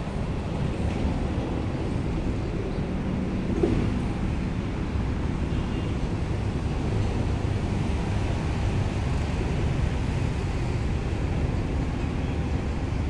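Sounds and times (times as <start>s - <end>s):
low rumbling outdoor background noise: 0.0s - 13.0s.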